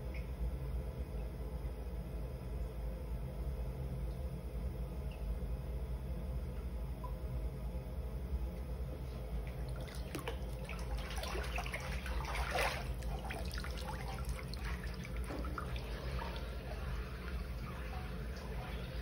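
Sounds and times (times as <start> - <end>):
steady low hum: 0.0 - 19.0
water splashing and sloshing: 9.0 - 19.0
water dripping: 9.5 - 19.0.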